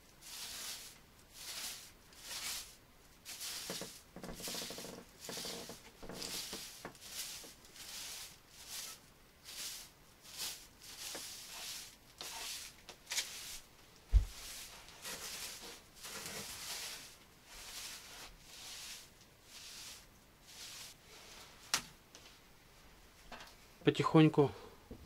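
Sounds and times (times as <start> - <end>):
broom sweeping floor: 0.0 - 22.4
heavy thump: 14.1 - 14.4.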